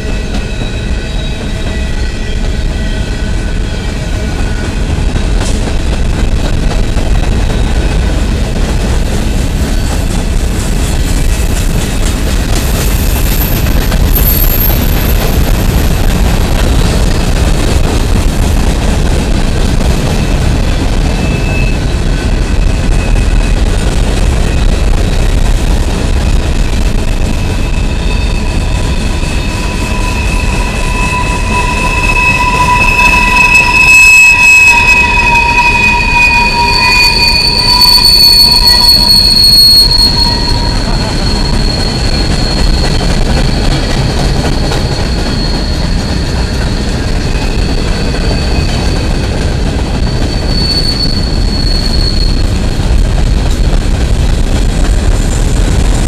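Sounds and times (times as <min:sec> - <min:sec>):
wheel squeals: 0:00.0 - 0:05.8, 0:09.5 - 0:17.2, 0:21.0 - 0:25.4, 0:27.0 - 0:52.6
train cars rumbling on rails: 0:00.0 - 0:56.0.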